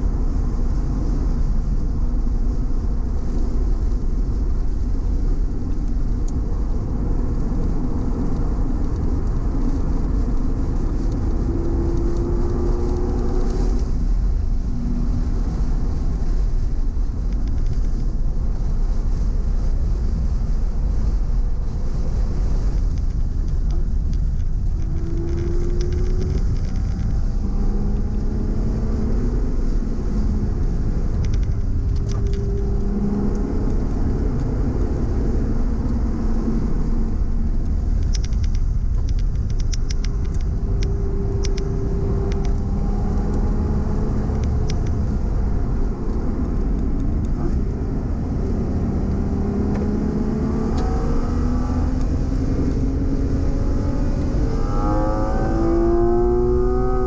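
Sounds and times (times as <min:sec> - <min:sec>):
car engine revving: 0:00.0 - 0:17.3, 0:23.5 - 0:57.0
road and wind rumble: 0:00.0 - 0:57.0
sharp ticks: 0:37.6 - 0:42.6.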